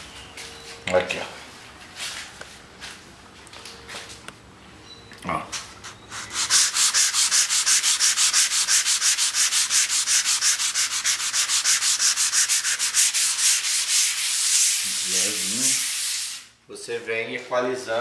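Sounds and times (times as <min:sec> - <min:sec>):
sandpaper rubbing on wall: 0:05.7 - 0:16.5.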